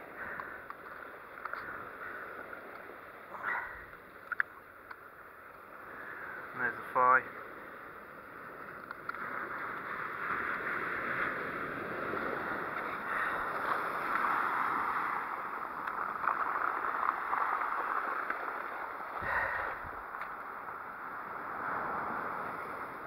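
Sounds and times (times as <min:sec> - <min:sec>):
waves washing over pebbles: 0:05.8 - 0:23.0.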